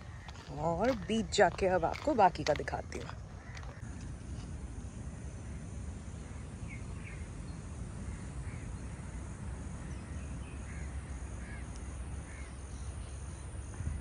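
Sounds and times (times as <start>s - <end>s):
low outdoor rumble: 0.0s - 14.0s
crows cawing: 3.4s - 3.9s, 10.7s - 11.7s.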